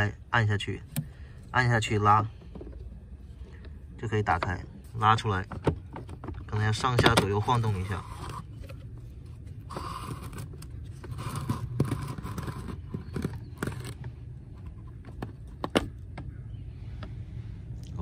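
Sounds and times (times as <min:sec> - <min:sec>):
filter scraping against plastic housing: 0:05.4 - 0:16.1.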